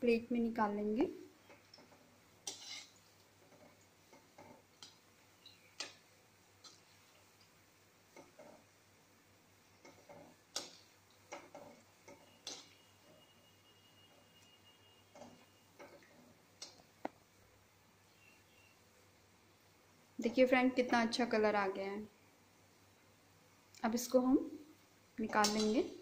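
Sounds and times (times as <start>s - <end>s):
metal spatula clinking on pan: 12.1s - 12.8s.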